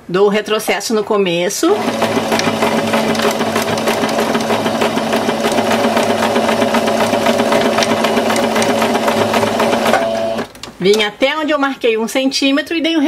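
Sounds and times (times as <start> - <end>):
sewing machine motor hum: 1.7 - 10.5
sewing machine needle rhythm: 1.7 - 10.5.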